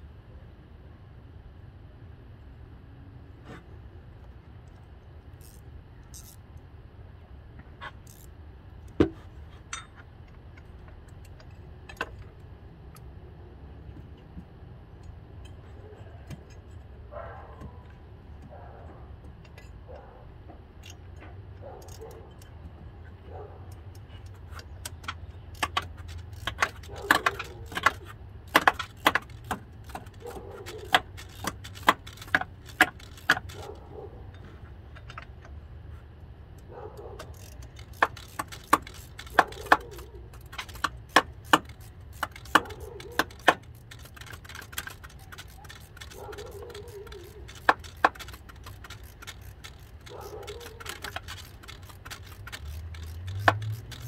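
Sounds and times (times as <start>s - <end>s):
metallic clicks of hand tools: 20.7s - 35.6s, 36.5s - 54.0s.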